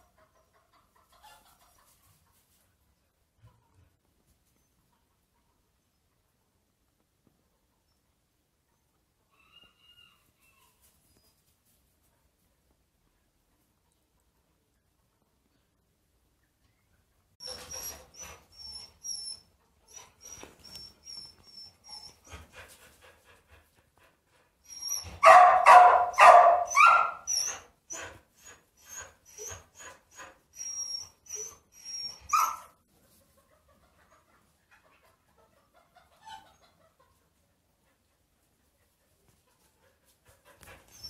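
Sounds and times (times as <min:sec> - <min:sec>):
dog barking: 0:25.2 - 0:27.3.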